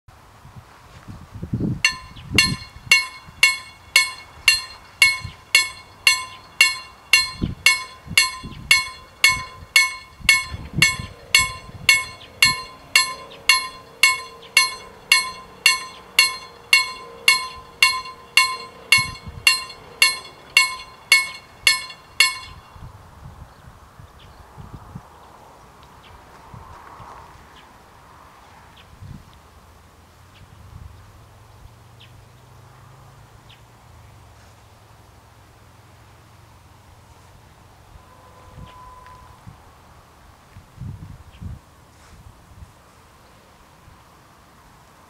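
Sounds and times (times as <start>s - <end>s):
level crossing bell ringing: 1.9s - 22.7s.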